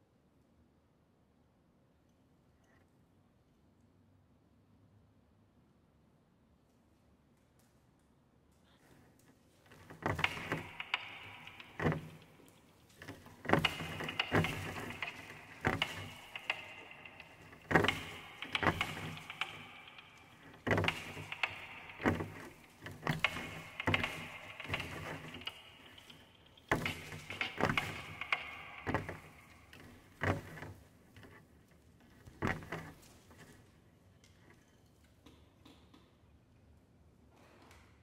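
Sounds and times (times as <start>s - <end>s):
sharp clicks and rattles: 9.6s - 31.4s.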